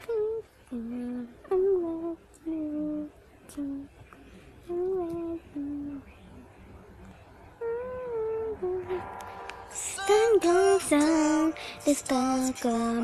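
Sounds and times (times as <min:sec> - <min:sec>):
person humming: 0:00.0 - 0:03.9, 0:04.7 - 0:06.0, 0:07.6 - 0:09.0.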